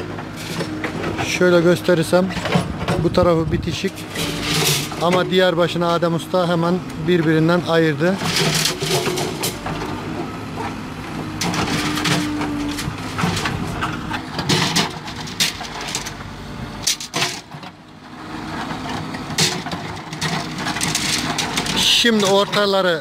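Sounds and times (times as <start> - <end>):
backhoe loader engine running: 0.0 - 23.0
metal bars clanking: 3.9 - 5.4.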